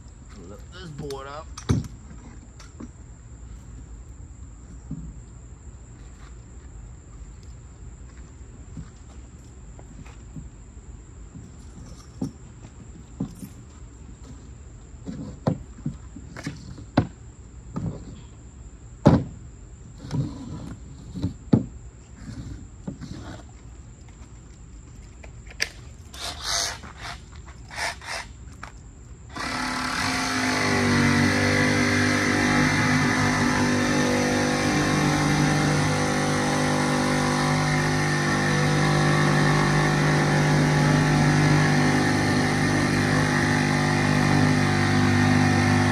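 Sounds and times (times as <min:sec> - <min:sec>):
machine running loudly: 0:29.4 - 0:45.9.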